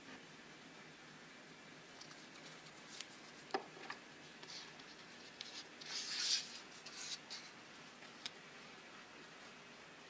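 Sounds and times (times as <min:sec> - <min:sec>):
scratchy rubbing: 0:04.4 - 0:07.6.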